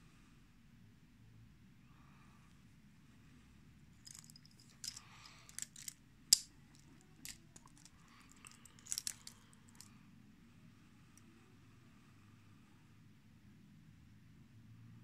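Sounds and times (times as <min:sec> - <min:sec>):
metal bracelets jingling: 0:04.0 - 0:09.9
watch clicks: 0:04.0 - 0:09.9.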